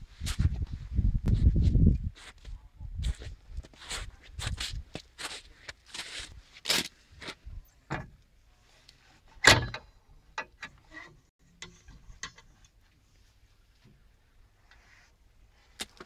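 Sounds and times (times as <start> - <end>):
metal latch clack: 9.4 - 10.8.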